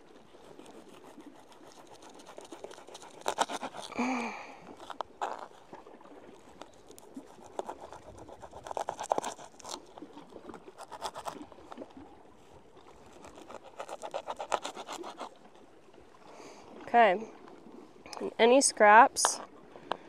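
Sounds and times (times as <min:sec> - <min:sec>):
knife sawing through fish: 0:00.4 - 0:05.7, 0:06.5 - 0:11.4, 0:13.0 - 0:15.4.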